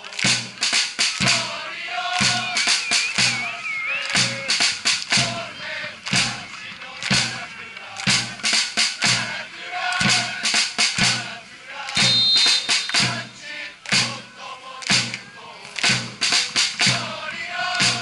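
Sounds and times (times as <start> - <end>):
drum beating steady rhythm: 0.0 - 18.0
supporters chanting: 0.0 - 18.0
high whistle tone: 2.2 - 4.8, 12.0 - 13.4.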